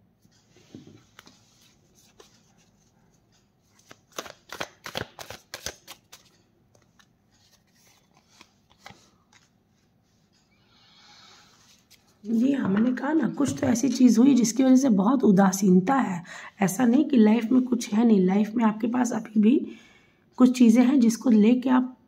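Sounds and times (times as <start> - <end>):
cards being shuffled: 3.7 - 9.5
card flicks and snaps: 4.1 - 5.9.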